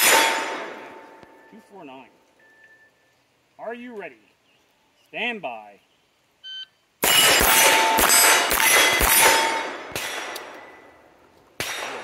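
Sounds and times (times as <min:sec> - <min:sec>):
steel plates ringing: 0:00.0 - 0:01.6, 0:07.0 - 0:10.8
rapid gunshots: 0:07.0 - 0:10.4.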